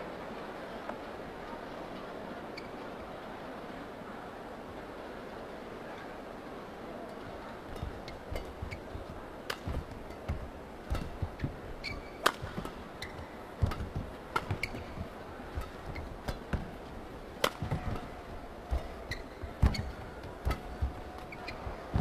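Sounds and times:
arena hum: 0:07.0 - 0:22.0
shoes thudding and squeaking: 0:07.3 - 0:22.0
rackets striking shuttlecock: 0:07.6 - 0:22.0.

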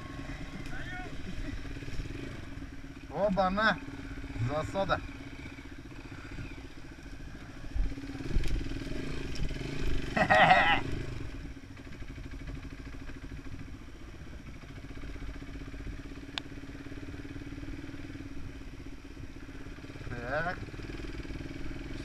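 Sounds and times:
dirt bike engine running: 0:00.0 - 0:22.0.

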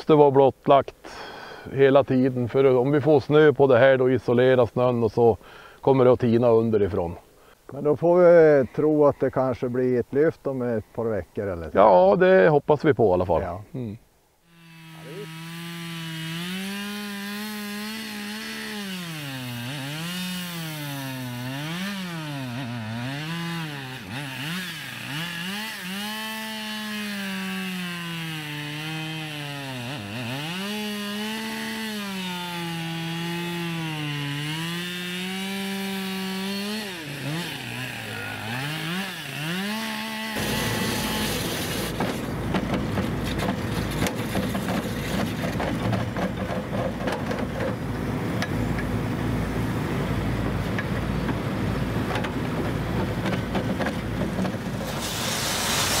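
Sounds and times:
chainsaw cutting ice: 0:14.5 - 0:47.0, 0:53.6 - 0:56.0
rough steady engine noise: 0:40.4 - 0:56.0.

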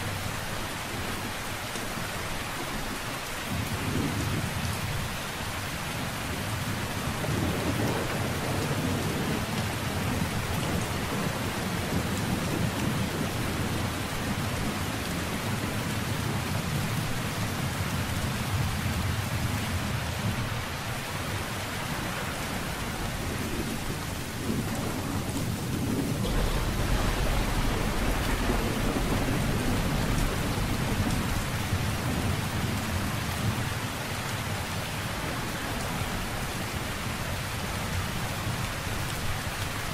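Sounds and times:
heavy rain: 0:00.0 - 0:39.9
rolling thunder: 0:06.4 - 0:20.6, 0:21.3 - 0:33.9.

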